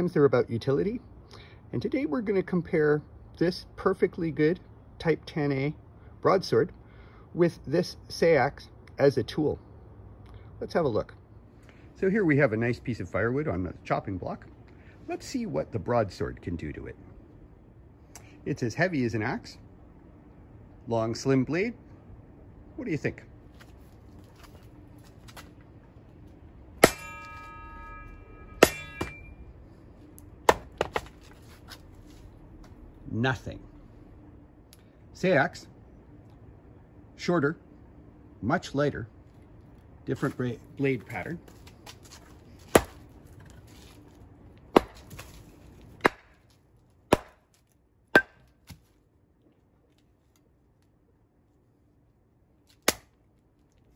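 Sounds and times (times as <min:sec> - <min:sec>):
blade chopping into log: 0:26.8 - 0:27.4, 0:30.5 - 0:31.2, 0:42.7 - 0:43.0, 0:44.8 - 0:45.3, 0:46.0 - 0:46.4, 0:47.1 - 0:47.4, 0:52.8 - 0:53.1
sword blade chopping into log: 0:26.8 - 0:27.6, 0:28.6 - 0:29.3, 0:30.5 - 0:31.8, 0:42.6 - 0:43.0, 0:44.8 - 0:45.4, 0:46.0 - 0:46.4, 0:48.2 - 0:48.8, 0:52.8 - 0:53.1
log toppling onto block: 0:30.5 - 0:31.8.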